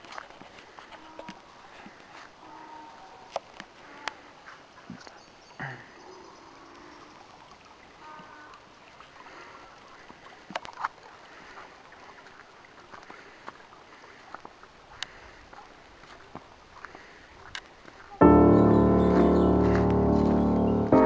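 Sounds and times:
stream flowing over stones: 0:06.4 - 0:18.9.

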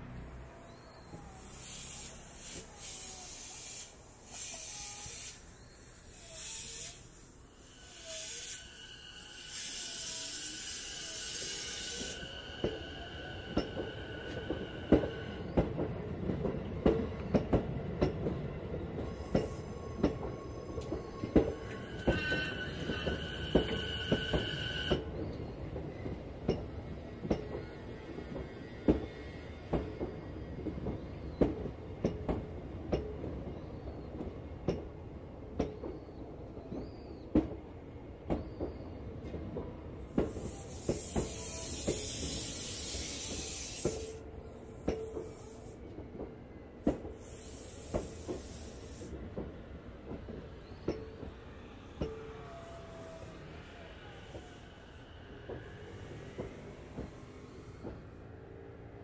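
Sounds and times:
air brakes hissing: 0:00.7 - 0:15.6, 0:40.1 - 0:46.0, 0:46.9 - 0:49.4.

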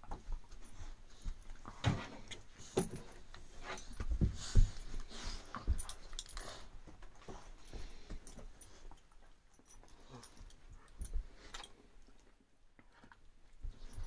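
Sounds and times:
thumps of bodies and paws: 0:00.0 - 0:08.9, 0:13.6 - 0:14.0
dogs scuffling on carpet: 0:00.2 - 0:08.9
collar tags jingling: 0:02.6 - 0:12.3.

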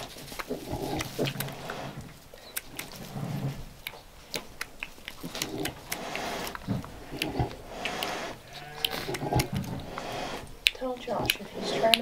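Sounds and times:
straw rustling and clicking: 0:00.0 - 0:12.0
sow grunts: 0:05.3 - 0:10.5.

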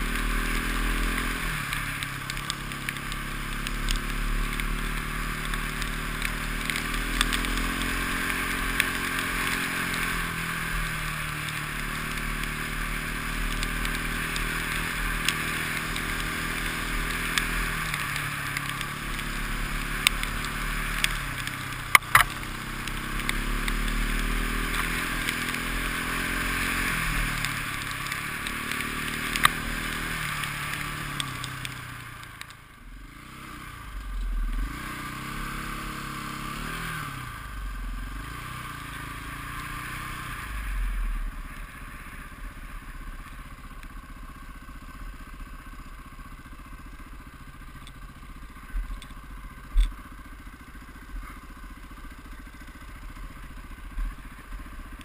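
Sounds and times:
motorcycle engine revving: 0:00.0 - 0:55.0
sharp clicks: 0:01.0 - 0:10.3, 0:13.5 - 0:32.6.

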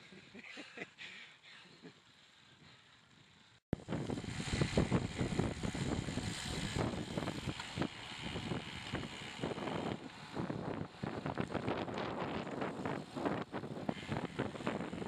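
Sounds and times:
wind buffeting microphone: 0:03.8 - 0:15.0.

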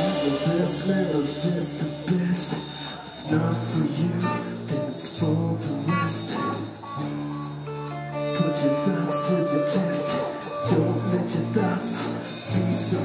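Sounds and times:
bass guitar: 0:00.0 - 0:13.0
drum kit with cymbals: 0:00.0 - 0:13.0
electric guitars: 0:00.0 - 0:13.0.

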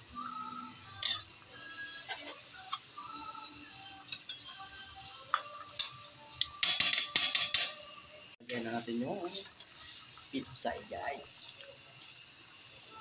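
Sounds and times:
soft background music: 0:00.0 - 0:13.0
metal ladle scraping a wok: 0:00.9 - 0:01.3.

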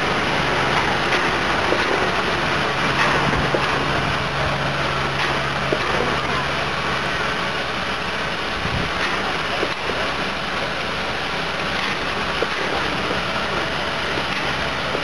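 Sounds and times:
steam locomotive hissing: 0:00.0 - 0:15.0.

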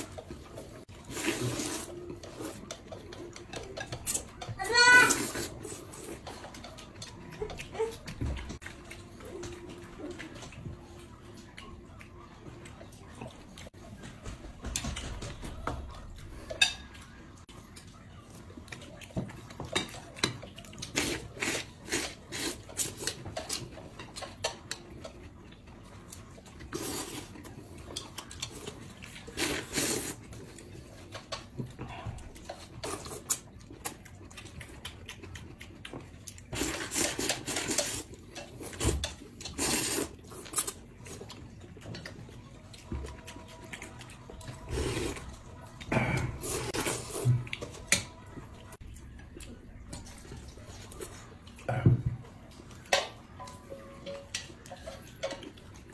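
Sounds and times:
slurping noodles and soup: 0:00.7 - 0:02.6, 0:20.8 - 0:23.2, 0:26.7 - 0:27.4, 0:28.5 - 0:30.4, 0:36.5 - 0:40.8, 0:44.6 - 0:47.5
chopsticks tapping ceramic bowls: 0:52.8 - 0:55.8.

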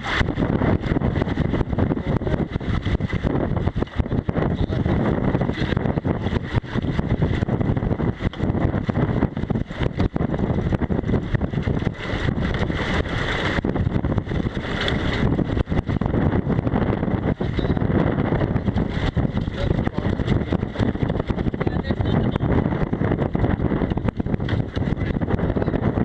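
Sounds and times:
strong wind rumbling on microphone: 0:00.0 - 0:26.0
water rushing along a hull: 0:00.0 - 0:26.0.

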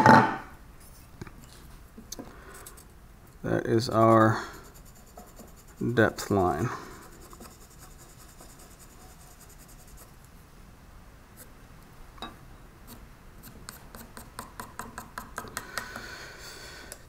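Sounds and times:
pencil scratching on wood: 0:03.9 - 0:10.2, 0:12.9 - 0:15.4.

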